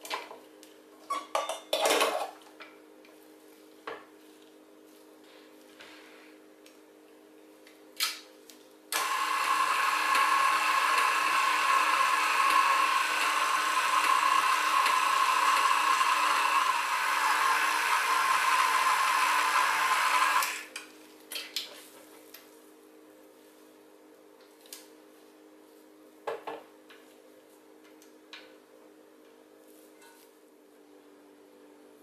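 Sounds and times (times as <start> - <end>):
stand mixer motor whine: 9.0 - 20.7.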